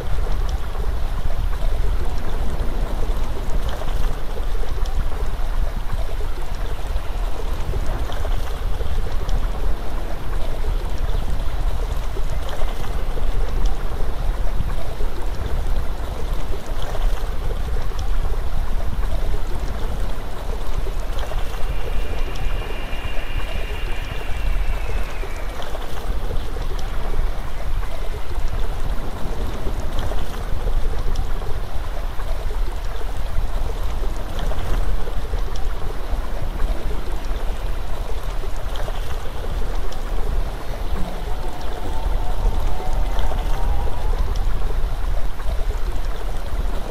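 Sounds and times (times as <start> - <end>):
water rushing: 0.0 - 46.9
faint high falling tone: 21.0 - 27.2.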